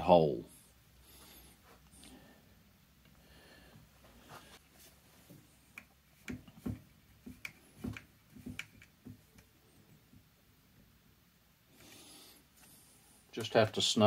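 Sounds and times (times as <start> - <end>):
light taps and clicks of small parts: 5.3 - 9.5.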